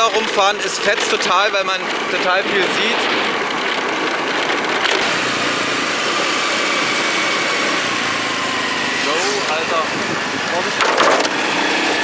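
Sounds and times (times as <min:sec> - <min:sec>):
scooter engine running: 0:00.0 - 0:12.0
wind and road noise: 0:00.0 - 0:12.0.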